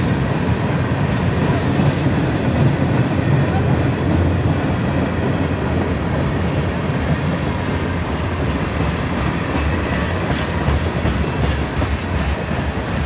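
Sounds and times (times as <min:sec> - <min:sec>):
train wheels rumbling on rail: 0:00.0 - 0:13.0
wheels clicking over rail joints: 0:05.7 - 0:13.0.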